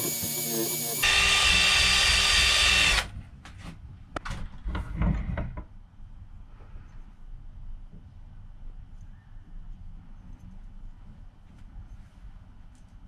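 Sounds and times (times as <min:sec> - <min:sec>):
cordless drill with brush on metal: 0:00.0 - 0:03.1.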